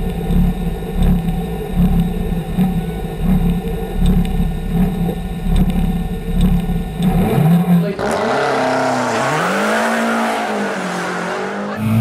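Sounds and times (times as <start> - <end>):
car engine idling unevenly: 0.0 - 12.0.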